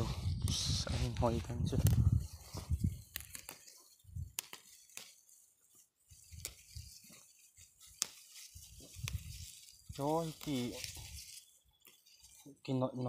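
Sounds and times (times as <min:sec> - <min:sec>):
snaps and rustles of greens picked: 0:01.0 - 0:12.4
sharp little cracks: 0:03.0 - 0:05.3, 0:07.8 - 0:09.3.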